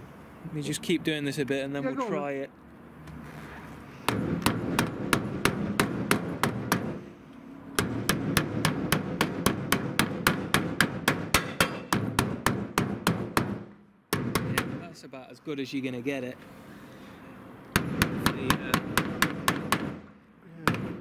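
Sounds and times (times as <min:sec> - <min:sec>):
hammer tapping metal: 0:07.8 - 0:14.8, 0:17.7 - 0:20.0.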